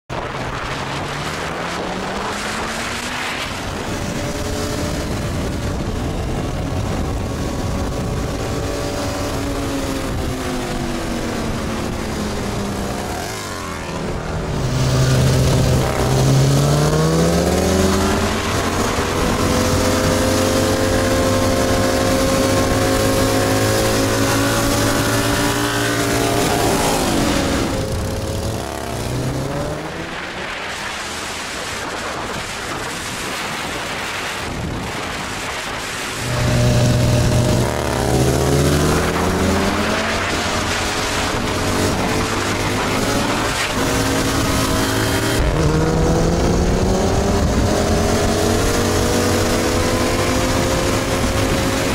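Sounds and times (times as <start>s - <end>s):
wind and road noise: 0.0s - 51.9s
motorcycle engine running: 0.1s - 33.0s, 35.9s - 51.9s.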